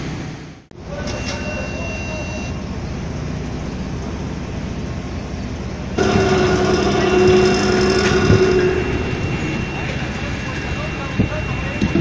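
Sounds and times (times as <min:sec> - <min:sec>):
machinery rumbling: 0:00.1 - 0:12.0
multi-tone drone: 0:06.0 - 0:12.0.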